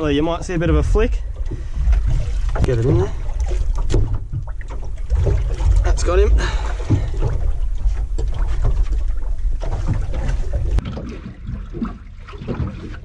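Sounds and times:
water washing: 0.0 - 13.0
wind rumbling on microphone: 0.0 - 13.0.

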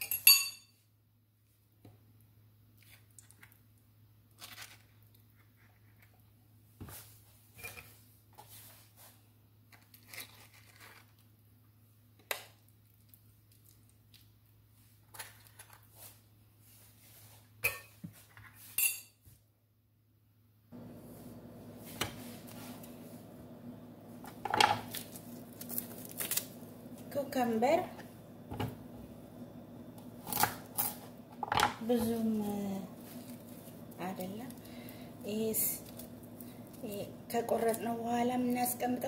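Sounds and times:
steady hum: 20.7 - 39.0.

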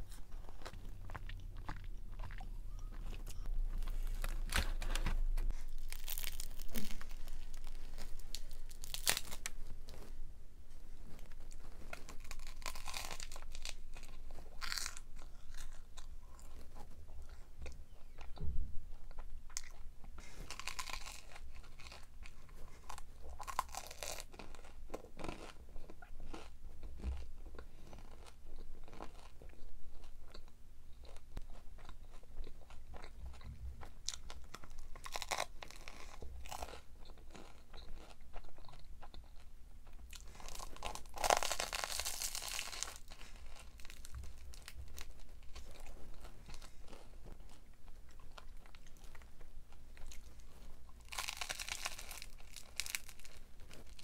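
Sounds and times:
person chewing crunchy food: 0.0 - 10.2, 11.0 - 54.0
crisp crunches: 2.8 - 10.2, 11.1 - 16.8, 19.6 - 25.6, 34.1 - 38.2, 40.1 - 49.3, 49.9 - 54.0.

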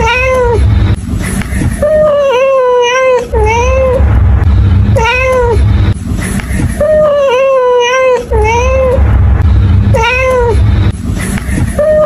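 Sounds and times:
cat meowing: 0.0 - 0.6, 1.8 - 4.1, 4.9 - 5.6, 6.8 - 9.0, 9.9 - 10.6.

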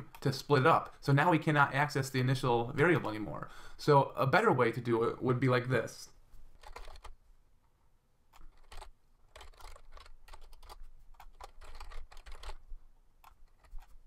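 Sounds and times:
computer keyboard typing: 6.6 - 7.2, 8.3 - 12.6.

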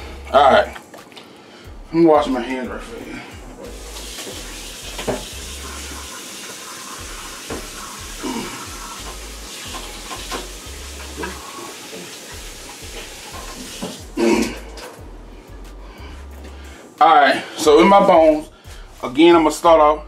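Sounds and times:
hands washing with splashes: 3.0 - 15.0
tap water running: 3.0 - 15.1.

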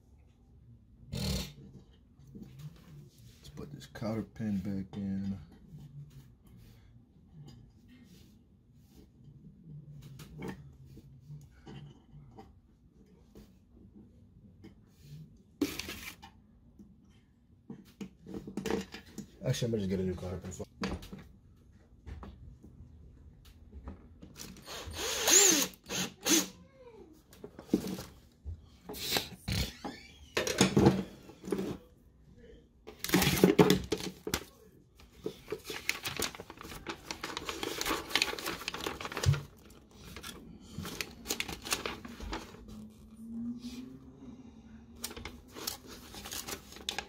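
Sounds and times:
cordless drill motor: 24.6 - 26.5
rustling: 33.0 - 43.0.

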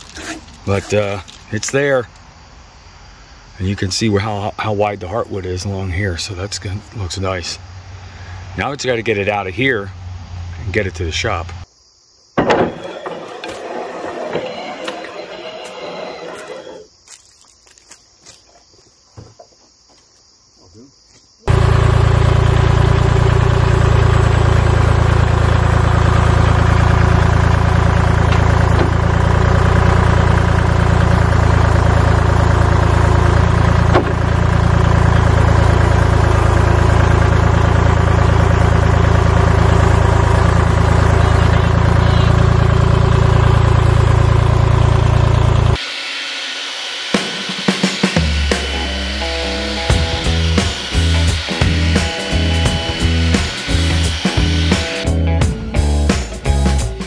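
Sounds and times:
tractor diesel engine running: 12.5 - 16.8, 21.5 - 45.8, 48.2 - 56.7.

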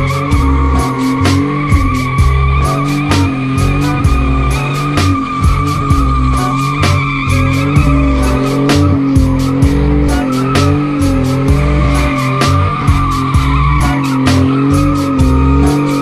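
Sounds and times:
deep stepping bass line: 0.0 - 16.0
wavering high tones: 0.0 - 16.0.

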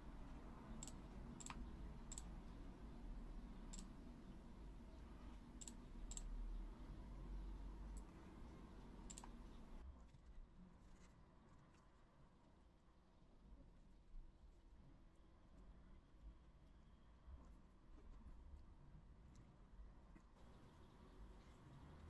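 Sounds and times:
low steady hum: 0.0 - 10.0
computer mouse button clicking: 0.8 - 2.3, 9.1 - 9.6.

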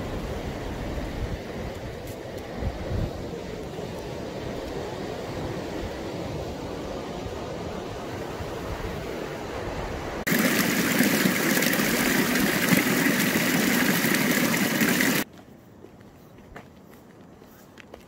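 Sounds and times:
stream splashing over rock: 10.3 - 15.2.

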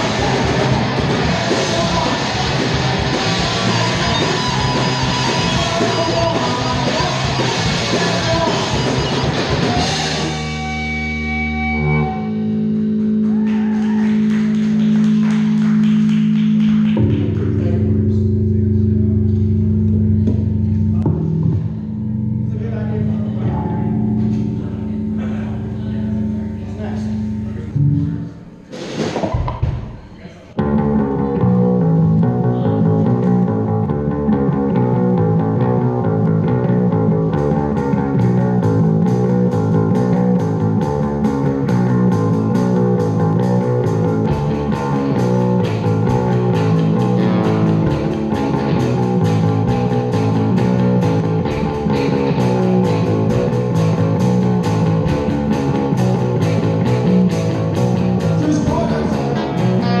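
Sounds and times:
drums and cymbals beat: 0.0 - 10.8
amplified electric guitars: 0.0 - 29.9, 30.6 - 60.0.

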